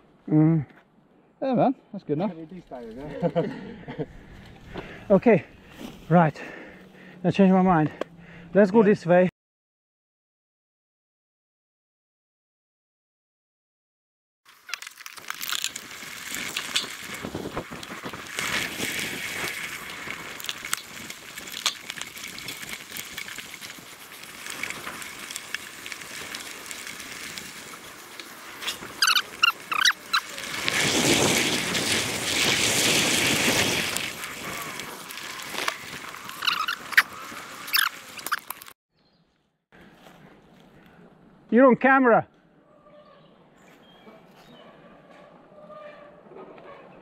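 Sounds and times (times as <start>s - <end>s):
bike tyres on dirt trail: 2.0s - 8.6s, 14.5s - 41.1s
bike rattles and knocks: 14.6s - 38.7s
short high squeaks: 28.6s - 38.8s.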